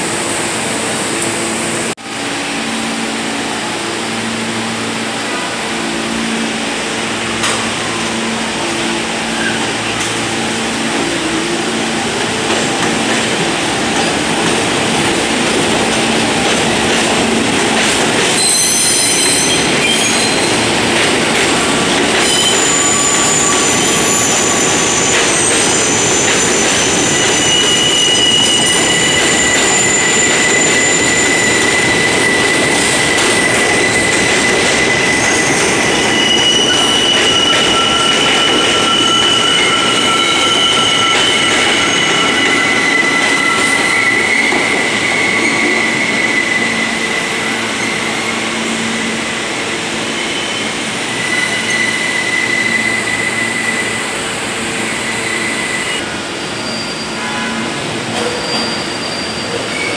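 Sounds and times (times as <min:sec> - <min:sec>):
train wheels rumbling on rails: 0:00.0 - 0:59.9
train wheels squealing: 0:09.3 - 0:10.2, 0:18.2 - 0:20.8, 0:21.7 - 0:59.9.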